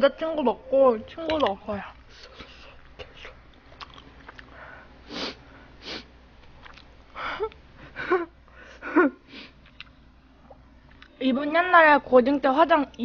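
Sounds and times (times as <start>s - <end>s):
woman sniffing: 5.1s - 6.1s.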